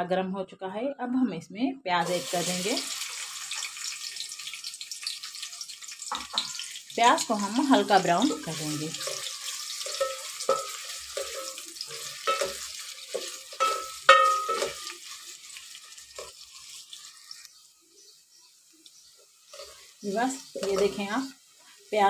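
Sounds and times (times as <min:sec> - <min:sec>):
onions sizzling in oil: 0:02.0 - 0:22.0
wooden spoon knocking and scraping: 0:09.9 - 0:15.0.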